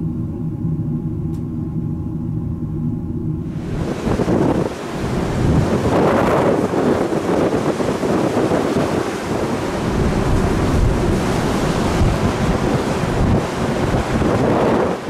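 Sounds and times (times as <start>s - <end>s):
sea wash: 3.4s - 15.0s
wind buffeting microphone: 3.4s - 15.0s.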